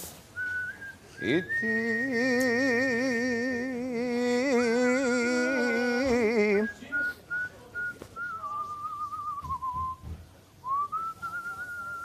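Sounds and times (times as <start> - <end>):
thin whistle-like tone: 0.4 - 2.1, 6.6 - 12.0
person singing with vibrato: 1.2 - 6.8.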